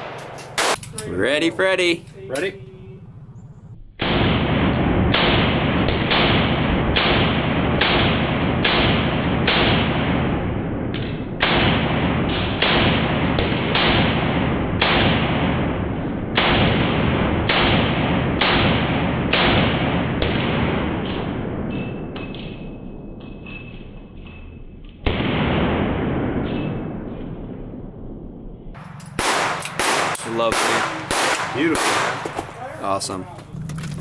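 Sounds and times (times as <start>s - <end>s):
pistol shots with echo: 0.0s - 0.9s, 4.0s - 23.2s, 28.8s - 32.7s.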